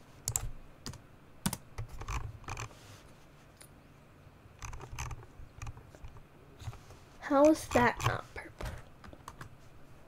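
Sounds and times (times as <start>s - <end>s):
computer keyboard and mouse clicks: 0.3s - 2.7s, 4.6s - 6.8s, 7.4s - 8.2s.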